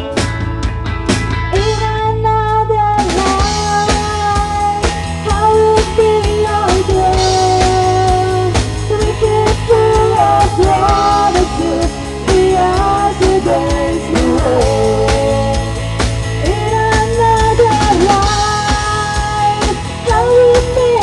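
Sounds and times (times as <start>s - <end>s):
drum kit: 0.0s - 2.3s, 2.9s - 21.0s
electric guitar: 0.0s - 21.0s
woman singing into a microphone: 1.5s - 21.0s.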